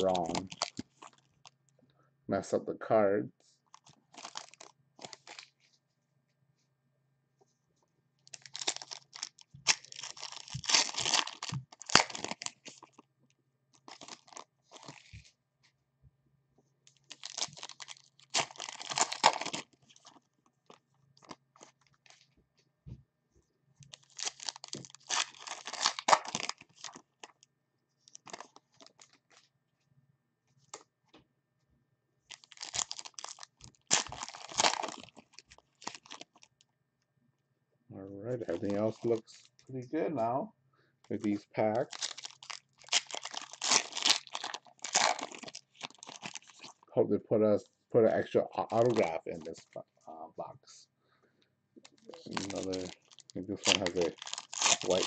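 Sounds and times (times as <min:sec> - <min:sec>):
card pack wrappers crinkling: 0:00.0 - 0:01.6, 0:03.7 - 0:05.6, 0:08.3 - 0:13.0, 0:13.7 - 0:15.3, 0:16.9 - 0:22.3, 0:23.8 - 0:27.4, 0:28.0 - 0:29.5, 0:32.3 - 0:36.6, 0:38.4 - 0:39.6, 0:41.2 - 0:46.9, 0:48.1 - 0:49.8, 0:51.8 - 0:55.0.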